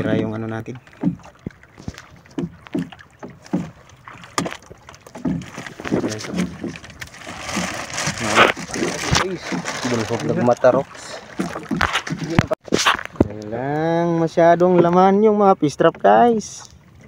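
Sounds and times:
plastic bag crinkling: 0:07.1 - 0:10.6.

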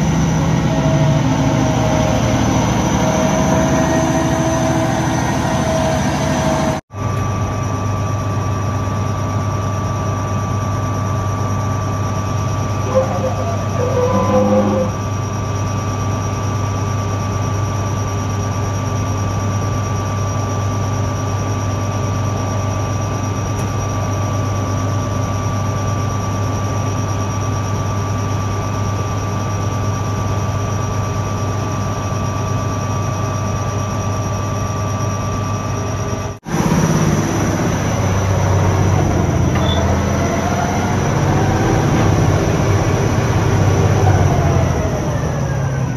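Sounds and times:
high whine: 0:00.0 - 0:15.9
diesel engine running: 0:00.0 - 0:18.7, 0:28.4 - 0:45.9
milling rotor turning: 0:12.8 - 0:15.0.

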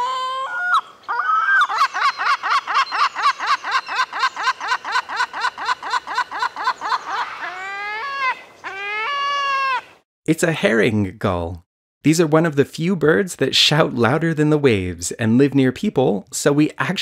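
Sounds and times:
gull calling: 0:00.0 - 0:10.0.

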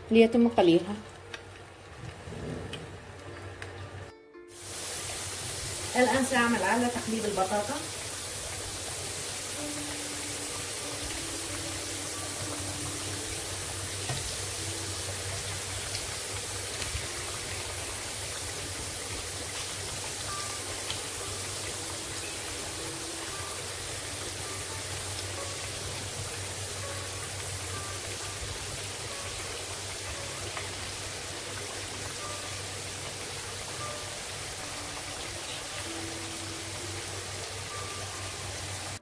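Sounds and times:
potatoes sizzling in oil: 0:00.0 - 0:02.4, 0:03.0 - 0:39.0.

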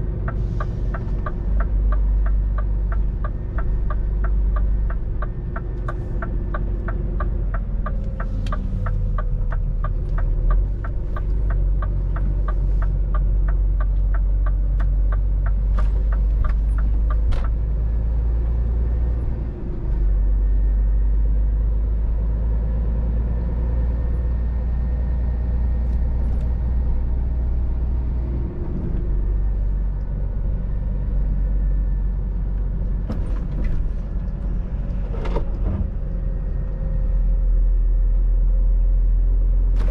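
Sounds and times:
turn signal ticking: 0:00.0 - 0:19.2
truck engine running: 0:00.0 - 0:39.9.

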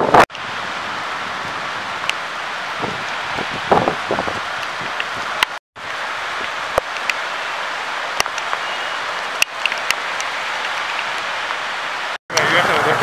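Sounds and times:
rain and wind hiss: 0:00.0 - 0:13.0.

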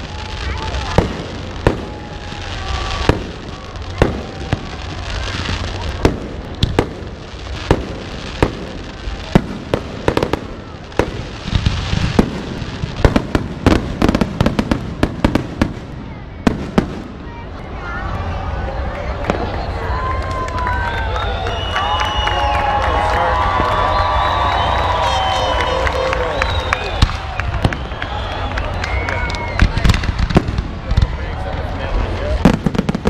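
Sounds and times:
fireworks hissing: 0:00.0 - 0:17.2.

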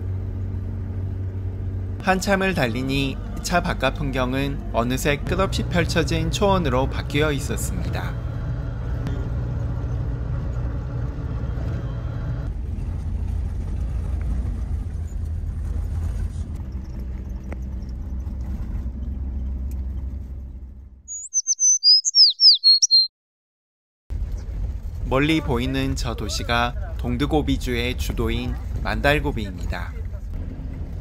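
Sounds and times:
van engine rumble: 0:00.0 - 0:21.1, 0:24.1 - 0:31.0
bird chirping: 0:21.1 - 0:23.1.

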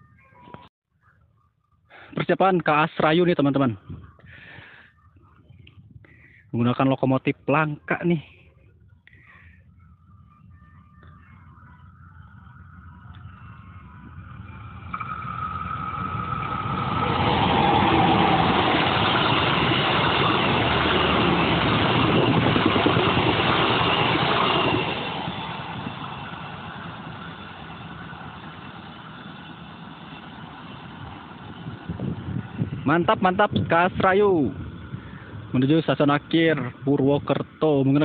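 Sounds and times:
diesel locomotive passing: 0:09.7 - 0:38.0.

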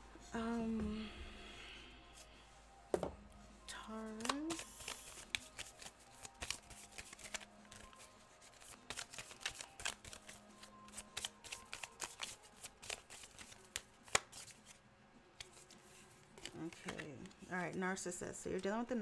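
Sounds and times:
cards being shuffled: 0:04.1 - 0:14.8, 0:15.4 - 0:17.8.

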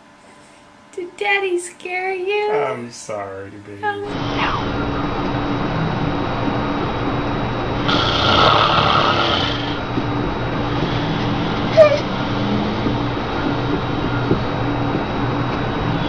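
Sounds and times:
man snoring: 0:07.8 - 0:09.9, 0:10.6 - 0:13.0.

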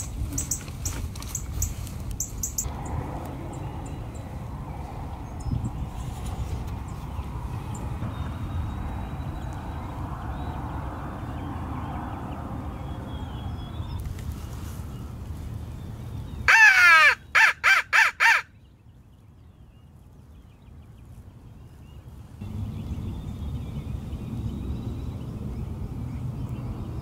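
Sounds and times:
steady low rumble: 0:01.6 - 0:14.0
crow cawing: 0:16.5 - 0:18.5.

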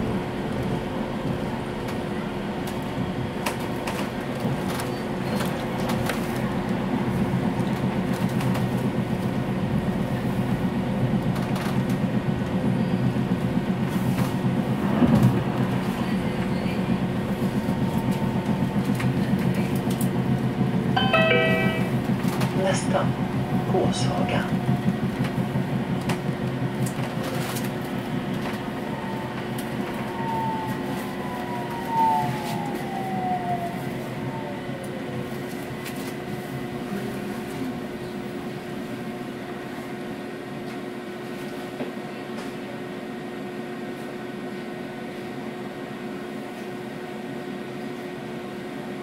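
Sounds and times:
standing tram hum: 0:00.0 - 0:49.0
tram motor whine: 0:00.0 - 0:49.0.

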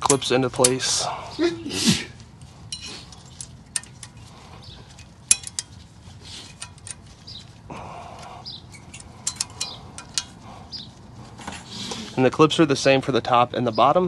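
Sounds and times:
small metal clips clicking: 0:02.7 - 0:04.3, 0:04.9 - 0:05.8, 0:06.5 - 0:07.4, 0:08.7 - 0:10.4.

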